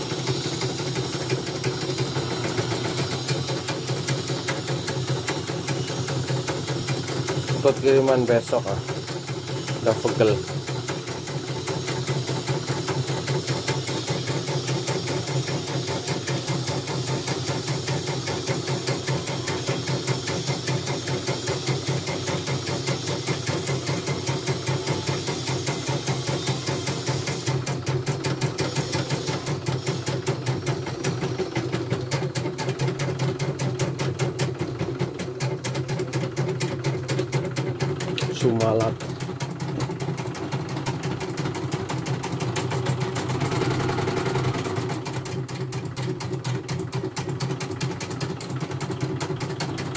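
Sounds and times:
motor hum: 0.0s - 13.3s.

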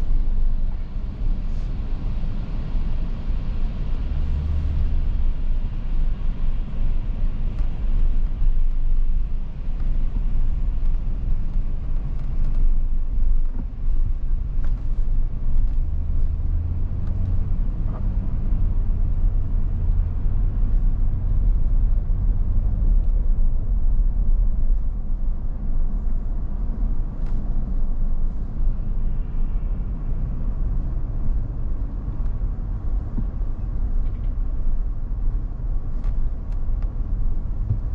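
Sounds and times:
engine and road noise in car: 0.0s - 37.9s.

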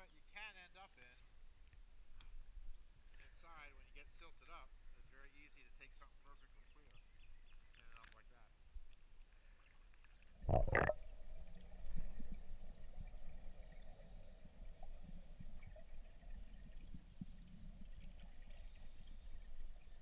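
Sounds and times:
faint clicks: 4.2s - 4.7s, 5.5s - 11.0s
muffled underwater rumble: 10.4s - 20.0s.

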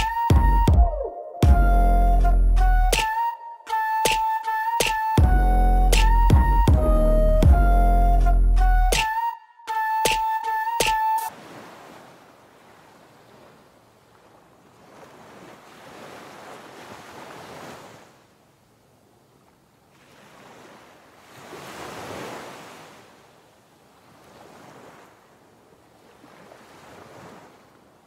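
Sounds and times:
ocean waves breaking: 10.9s - 18.4s, 19.8s - 28.0s.

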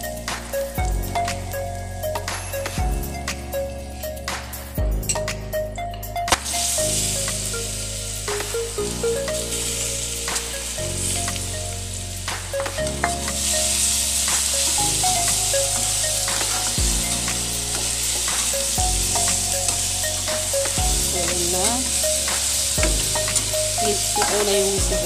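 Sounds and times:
background music: 0.0s - 25.0s
food sizzling in hot oil: 6.5s - 25.0s.

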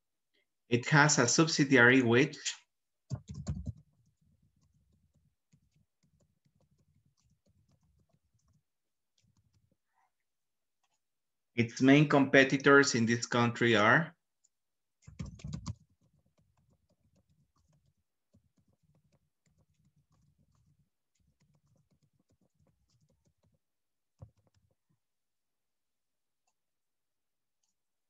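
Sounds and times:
faint keyboard typing: 3.1s - 10.2s, 10.8s - 11.1s, 14.4s - 25.0s, 27.6s - 27.9s.

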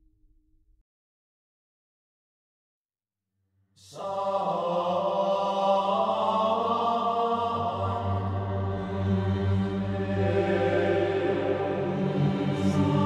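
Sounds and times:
background music sustained tones: 4.0s - 13.0s.

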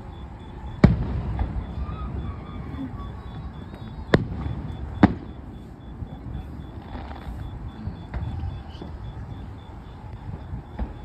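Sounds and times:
firework bang: 0.6s - 9.5s, 10.2s - 11.0s
firework pops: 3.7s - 5.6s, 6.7s - 9.0s, 10.2s - 11.0s.

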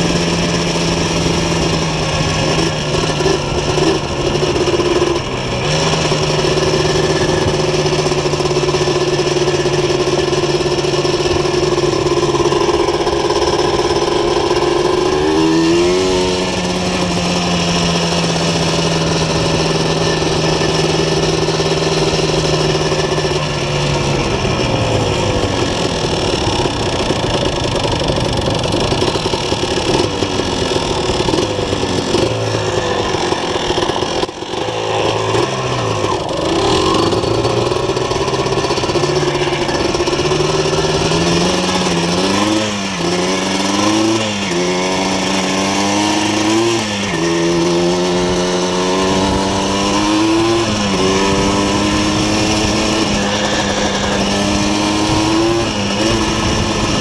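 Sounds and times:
two-stroke quad engine running: 0.0s - 57.0s.

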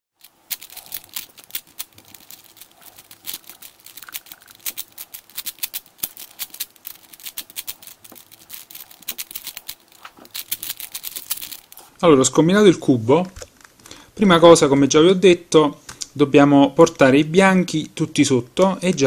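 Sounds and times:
puzzle cube clicking: 0.2s - 11.9s.

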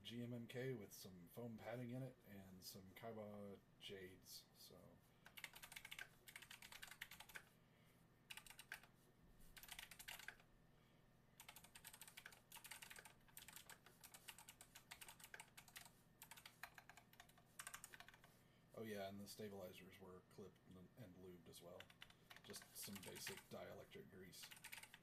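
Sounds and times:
mechanical keyboard clicks: 5.3s - 7.4s, 8.3s - 8.9s, 9.6s - 10.4s, 11.4s - 18.3s, 21.8s - 23.5s, 24.4s - 25.0s.

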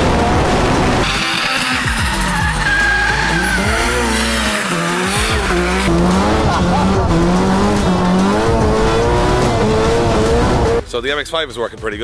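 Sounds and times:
car engine revving: 0.0s - 10.8s
tires squealing: 0.1s - 10.8s.

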